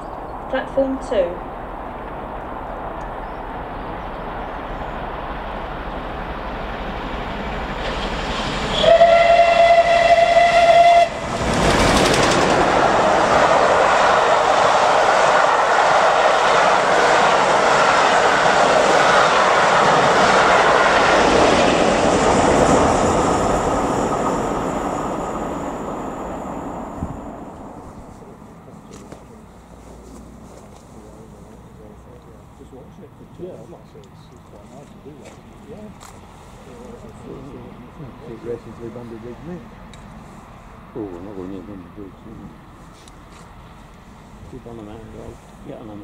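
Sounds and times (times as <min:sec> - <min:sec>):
steam locomotive passing: 0:00.0 - 0:46.0
steam whistle: 0:08.7 - 0:11.3.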